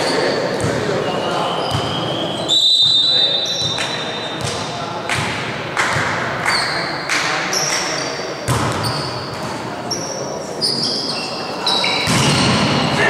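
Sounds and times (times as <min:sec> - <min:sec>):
sneakers squeaking on court: 0:00.0 - 0:05.3, 0:07.5 - 0:13.0
volleyball thudding: 0:08.5 - 0:08.8, 0:12.0 - 0:12.9.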